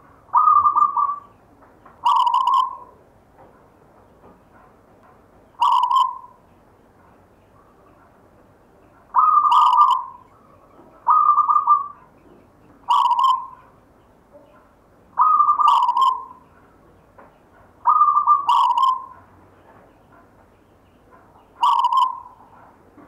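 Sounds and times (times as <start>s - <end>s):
dove cooing: 0.0s - 1.3s, 2.0s - 3.0s, 5.6s - 6.4s, 9.1s - 12.2s, 12.8s - 13.8s, 14.4s - 16.5s, 17.8s - 19.3s, 21.4s - 22.6s.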